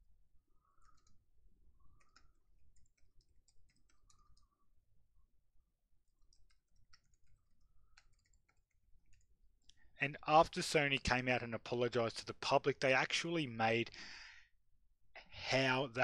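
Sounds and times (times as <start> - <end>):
keyboard typing: 0.7 - 1.3, 1.9 - 4.6, 6.0 - 9.3.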